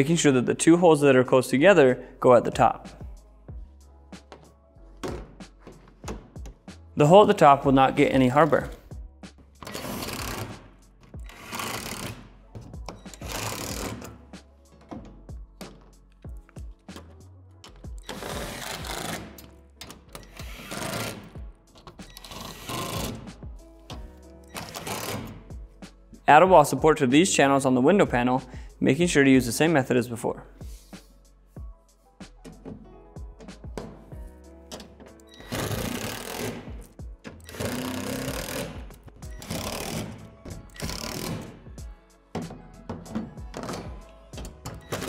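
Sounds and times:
faint background music: 0.0 - 45.0
cordless drill driving screws: 18.0 - 19.4, 35.4 - 36.7, 37.5 - 38.8, 39.4 - 41.6.

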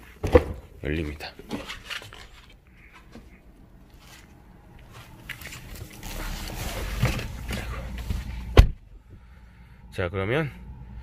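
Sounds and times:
soft rustling and handling: 0.9 - 8.5
low rumble: 3.3 - 11.0.

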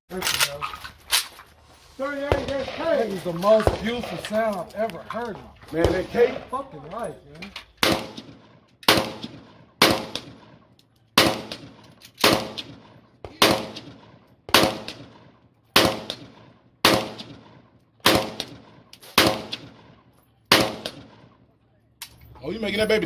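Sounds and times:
rifle shots with echo: 2.2 - 4.4, 5.8 - 6.6, 7.8 - 21.4.

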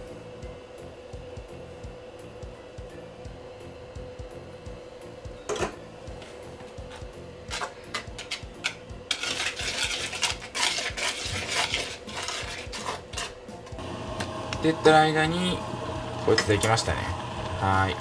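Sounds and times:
utensil stirring in bowl: 7.5 - 13.4.

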